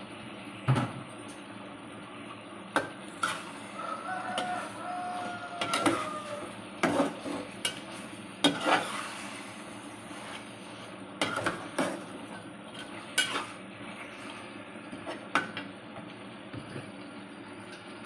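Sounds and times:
chicken sizzling: 0:01.4 - 0:18.0
metal spatula scraping a pan: 0:03.2 - 0:12.1, 0:13.1 - 0:13.6.

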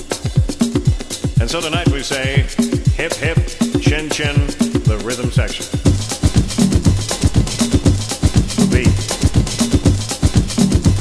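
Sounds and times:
music with fast drum beat: 0:00.0 - 0:11.0
repeating bass line: 0:05.9 - 0:11.0.

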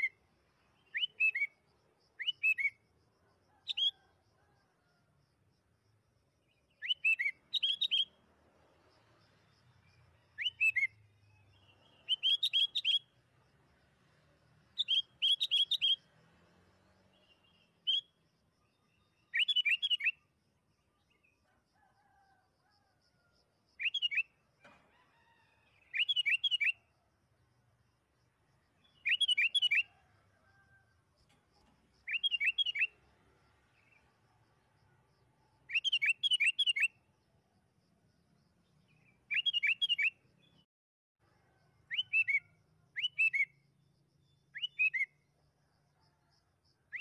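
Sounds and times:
bulbul singing whistled phrases: 0:00.8 - 0:01.6, 0:02.2 - 0:02.8, 0:06.7 - 0:08.2, 0:10.3 - 0:13.1, 0:14.8 - 0:16.1, 0:17.2 - 0:18.2, 0:19.1 - 0:20.2, 0:23.8 - 0:24.3, 0:25.9 - 0:26.8, 0:28.9 - 0:30.0, 0:32.1 - 0:33.0, 0:35.7 - 0:37.0, 0:39.0 - 0:40.2, 0:41.9 - 0:43.6, 0:44.5 - 0:45.2.

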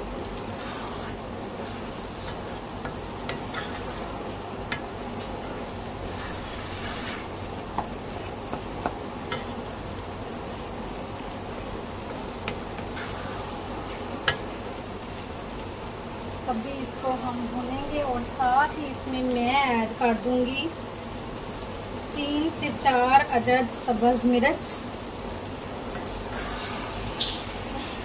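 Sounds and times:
meat sizzling in oil: 0:00.0 - 0:28.0
wooden spatula scraping pan: 0:00.4 - 0:07.9, 0:12.5 - 0:14.4, 0:25.9 - 0:27.4.

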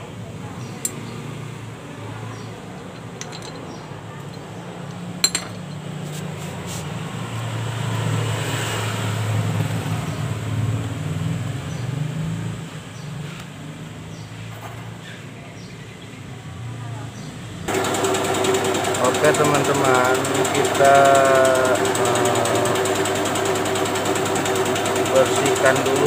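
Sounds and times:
vehicle passing: 0:06.0 - 0:14.2.

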